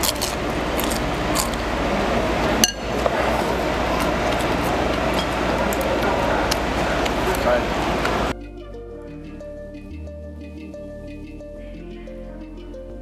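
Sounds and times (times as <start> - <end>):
room noise: 0.0 - 8.4.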